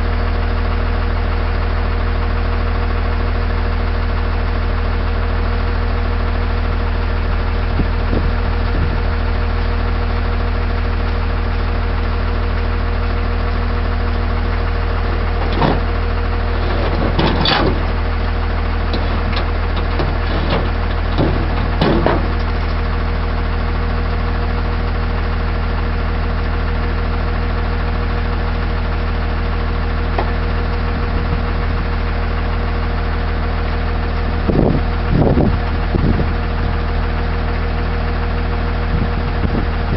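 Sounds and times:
truck engine idling: 0.0 - 39.9
short knocks: 18.9 - 22.8.

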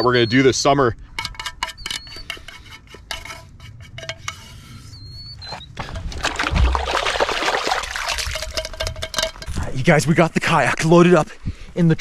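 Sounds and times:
utensil scraping metal pan: 1.2 - 6.1
water splashing and swishing: 5.8 - 9.3
heavy splash: 6.0 - 8.6.

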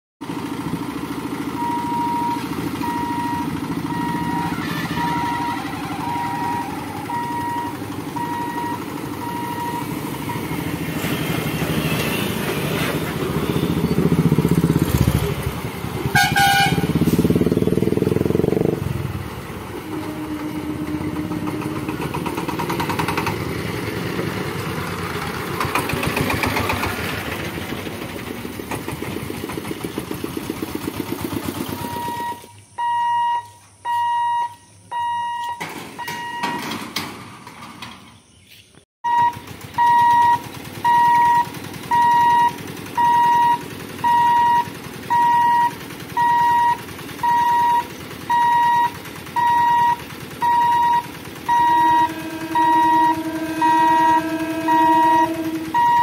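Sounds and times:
motorcycle engines passing: 2.3 - 32.3, 39.1 - 56.0
horn honk: 2.8 - 14.2, 16.0 - 17.8, 18.6 - 22.4, 51.5 - 56.0
electronic beeping: 31.9 - 36.6, 39.1 - 56.0.

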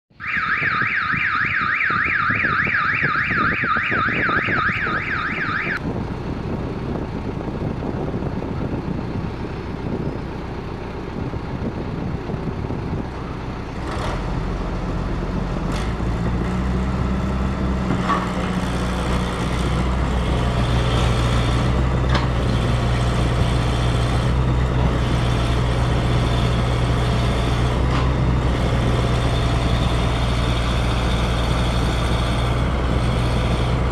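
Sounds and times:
warbling siren-like electronic sound: 0.1 - 5.8.

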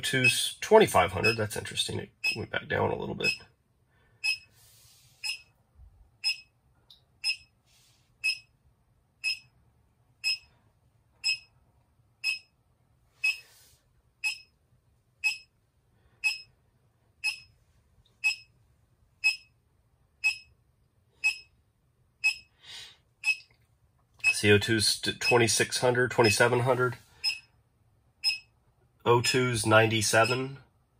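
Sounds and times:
high-pitched electronic beeps: 4.2 - 4.4, 5.2 - 5.4, 6.2 - 6.4, 7.2 - 7.5, 8.2 - 8.4, 9.2 - 9.4, 10.2 - 10.5, 11.2 - 11.5, 14.2 - 14.5, 15.2 - 15.5, 17.2 - 17.5, 18.2 - 18.4, 19.2 - 19.5, 20.2 - 20.5, 22.2 - 22.4, 23.2 - 23.4, 27.2 - 27.4, 28.2 - 28.5.

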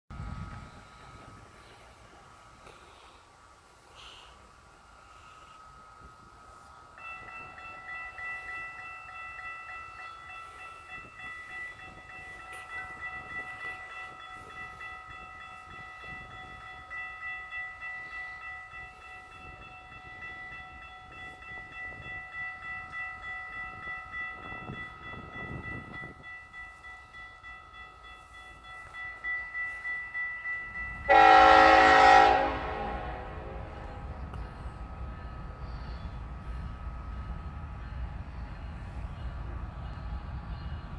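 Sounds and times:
train rumbling: 0.1 - 40.9
crossing warning bell ringing: 3.9 - 40.9
locomotive air horn blast: 31.1 - 33.8.

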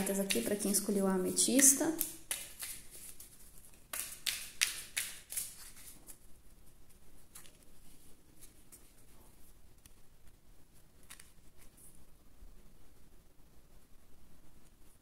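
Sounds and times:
cards being shuffled: 0.0 - 0.9, 1.6 - 6.2, 7.3 - 9.1, 11.0 - 11.9.

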